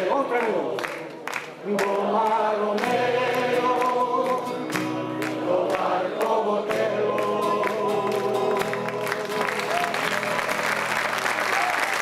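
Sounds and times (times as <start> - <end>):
group singing in chorus: 0.0 - 9.7
strummed acoustic guitar: 2.8 - 5.8, 6.6 - 11.0.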